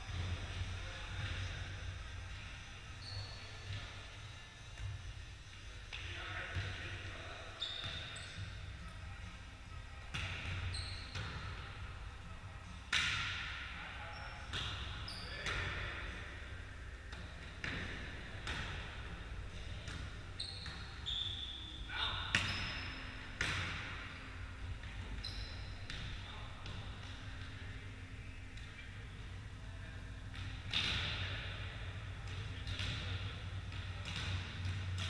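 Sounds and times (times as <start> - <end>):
sneakers squeaking on wooden court: 2.9 - 3.9, 7.5 - 8.7, 10.1 - 11.6, 14.1 - 15.9, 19.8 - 24.0, 25.0 - 27.4.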